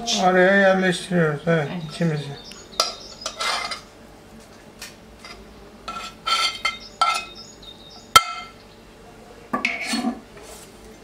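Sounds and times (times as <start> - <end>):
frying pan and utensils clinking: 2.8 - 3.9, 5.2 - 7.4, 8.2 - 8.6.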